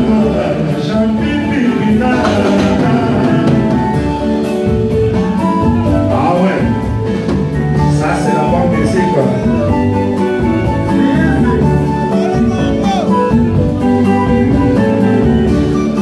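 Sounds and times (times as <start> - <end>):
person singing: 0.0 - 4.2
electric guitars over steady beat: 0.0 - 16.0.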